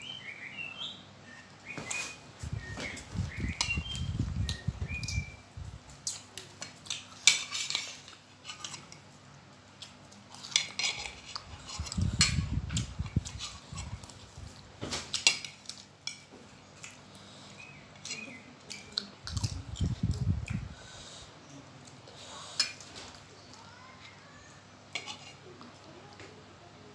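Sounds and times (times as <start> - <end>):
eating noises: 16.7 - 26.2.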